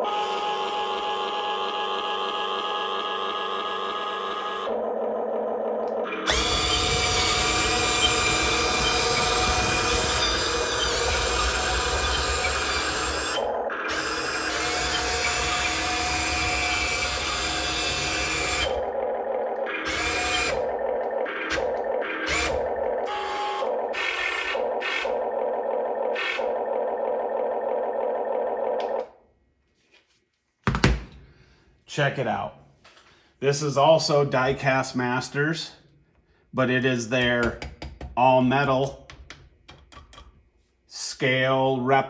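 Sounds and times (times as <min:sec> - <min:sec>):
electric motors whirring: 0:00.0 - 0:25.5
motor whine bursts: 0:06.0 - 0:19.0, 0:19.6 - 0:25.2.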